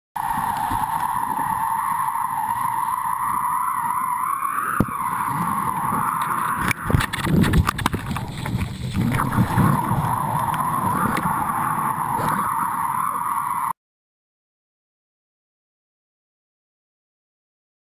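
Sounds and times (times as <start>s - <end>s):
wind on microphone: 4.7s - 12.7s
board splashing through water: 6.6s - 11.3s.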